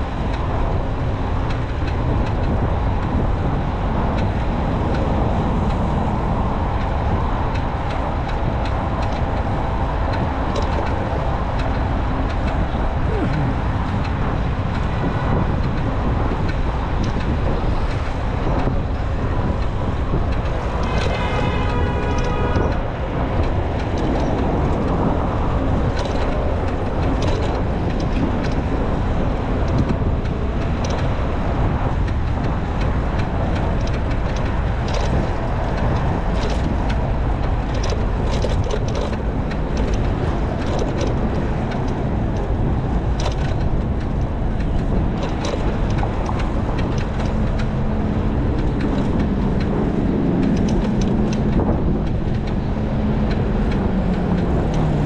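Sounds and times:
bike clicks and rattles: 0.0 - 55.0
road traffic: 0.0 - 55.0
wind and road noise: 0.0 - 55.0.

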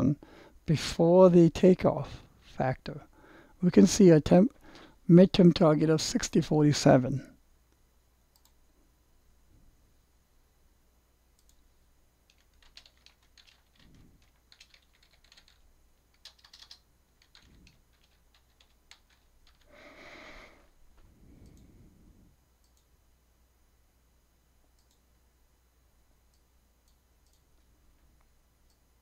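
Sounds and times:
faint keyboard typing: 8.3 - 8.6, 11.3 - 19.9, 22.6 - 22.9, 26.3 - 28.8.

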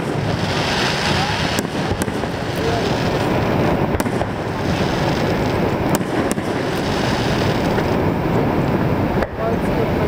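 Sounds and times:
faint firework crackles: 0.0 - 10.0
steady rushing roar: 0.0 - 10.0.

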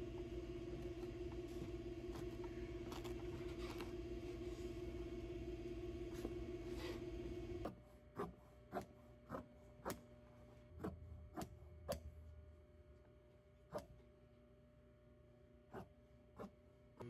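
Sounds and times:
steady low hum: 0.0 - 17.0
shears snipping fabric: 7.6 - 10.1.

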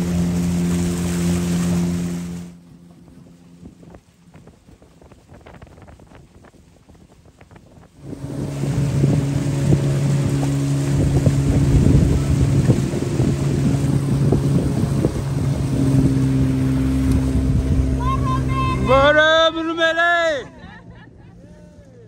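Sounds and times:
boat motor running: 0.0 - 22.0
water rushing past hull: 0.0 - 22.0
wind on microphone: 2.7 - 19.2.

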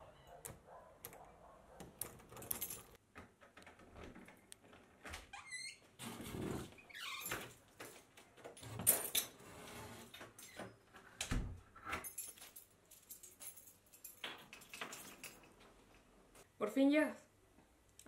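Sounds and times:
keys jangling: 1.8 - 3.0, 12.0 - 15.7
door opening and shutting: 1.9 - 7.7, 8.4 - 12.1.

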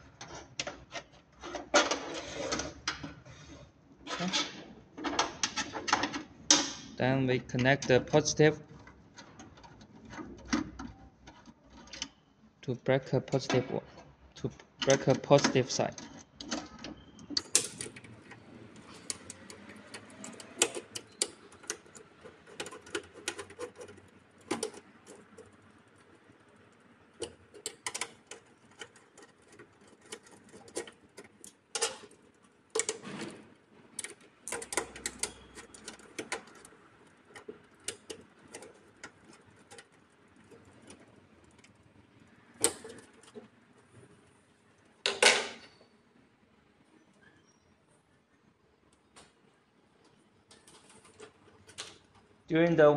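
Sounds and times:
hex key clicking on screws: 14.8 - 33.0, 33.9 - 41.8.

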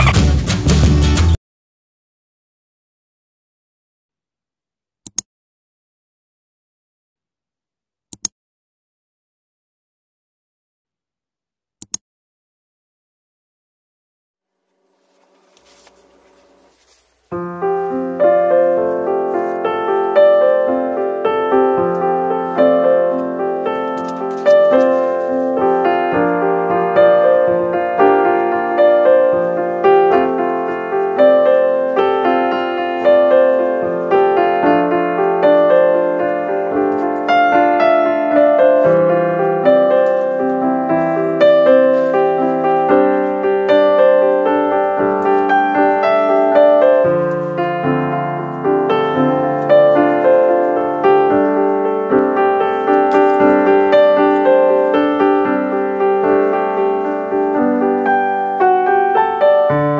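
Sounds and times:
background piano music: 17.2 - 59.9.

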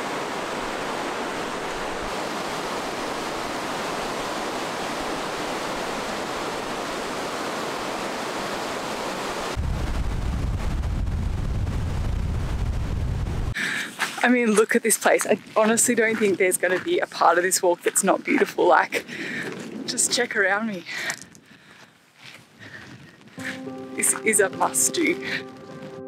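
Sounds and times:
fast-flowing river water: 0.0 - 9.6
wind buffeting microphone: 9.5 - 13.6, 15.2 - 23.6.

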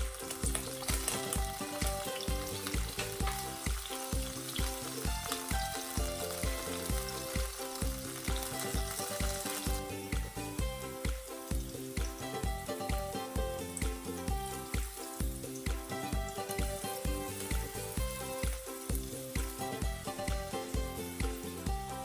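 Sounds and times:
background music with steady beat: 0.0 - 22.0
food sizzling in oil: 0.0 - 22.0.

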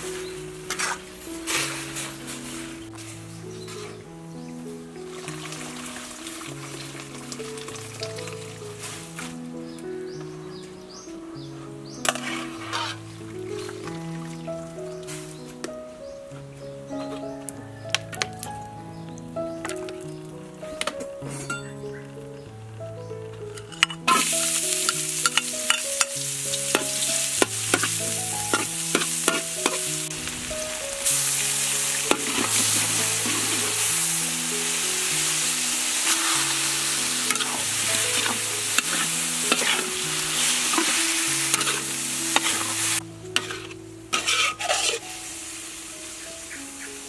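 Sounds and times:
spatula scraping a wok: 0.7 - 4.0, 12.0 - 13.0, 23.8 - 30.0, 32.0 - 34.1, 36.0 - 45.2
aromatics sizzling in hot oil: 5.0 - 9.3, 12.0 - 14.1, 23.8 - 47.0.

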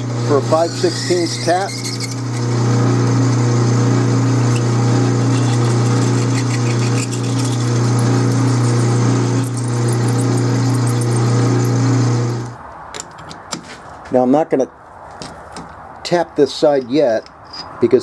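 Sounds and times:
drill boring into steel bar: 0.0 - 12.5
lathe humming: 0.0 - 12.6.

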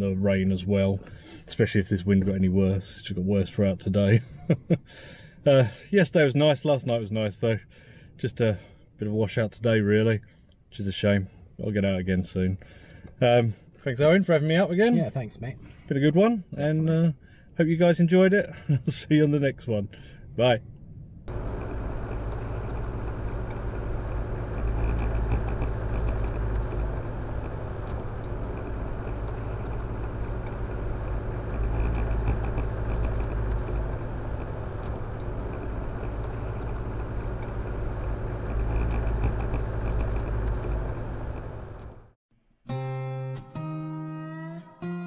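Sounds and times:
car interior low rumble: 20.5 - 42.2
light rattling: 21.3 - 42.1.

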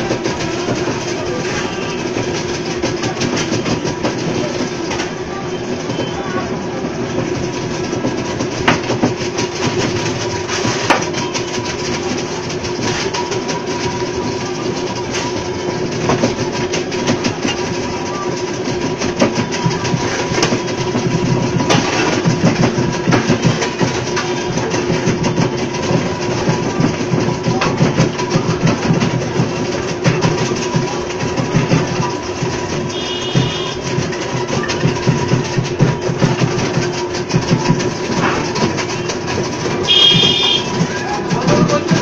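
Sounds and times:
ice rattling in crusher: 0.0 - 5.5, 6.1 - 42.0
ice crusher motor humming: 0.0 - 42.0.

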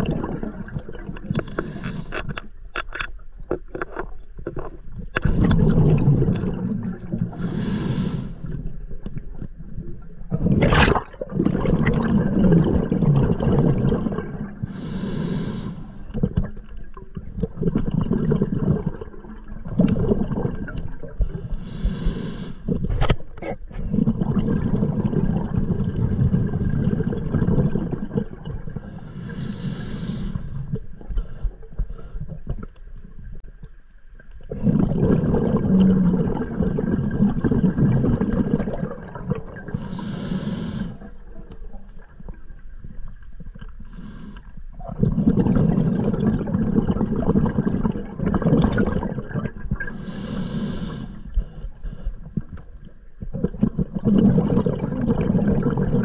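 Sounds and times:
bubbling of exhaled air: 0.0 - 2.6, 4.6 - 33.4, 34.4 - 56.0
regulator hissing inhale: 1.3 - 2.3, 7.3 - 8.6, 14.6 - 16.1, 21.2 - 22.8, 28.8 - 32.3, 39.7 - 41.2, 43.8 - 44.6, 49.8 - 52.2.

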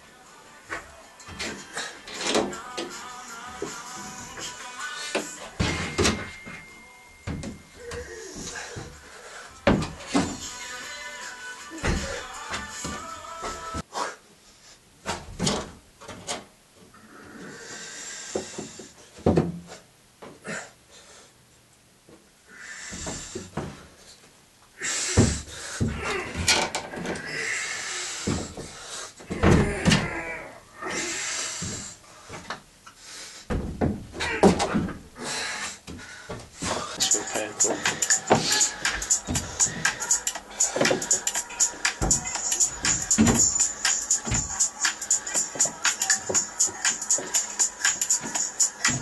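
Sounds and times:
person breathing hard and grunting: 7.7 - 10.6, 22.5 - 23.5, 24.8 - 32.4, 35.2 - 49.0.

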